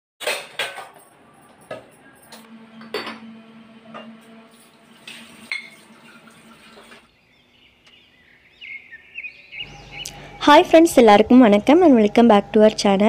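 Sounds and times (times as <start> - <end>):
dishes and jars clinking: 0.2 - 3.3, 5.0 - 7.0
faint low steady hum: 7.1 - 13.0.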